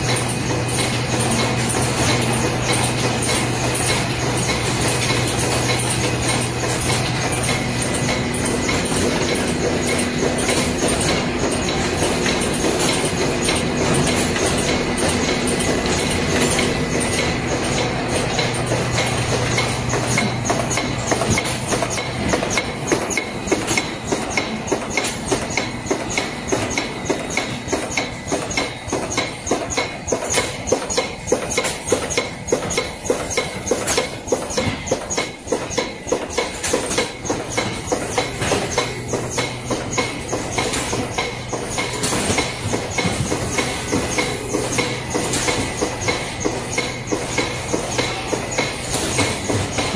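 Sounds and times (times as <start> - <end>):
cartoning machine clattering: 0.0 - 49.9.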